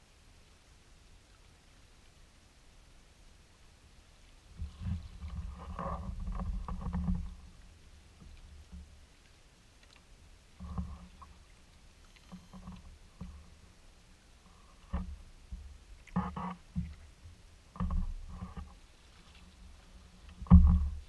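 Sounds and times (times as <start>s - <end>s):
water sloshing against hull: 4.2s - 21.0s.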